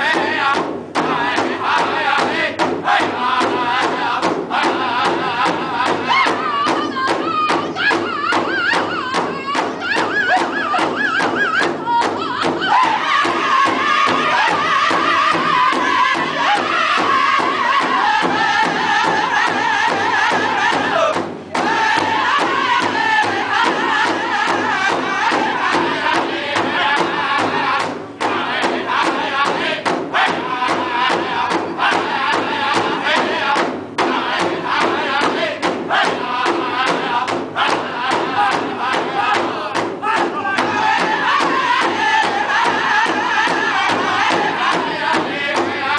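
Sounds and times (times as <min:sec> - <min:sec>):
large hand drum beating: 0:00.0 - 0:45.9
men singing in high voices: 0:00.0 - 0:45.9.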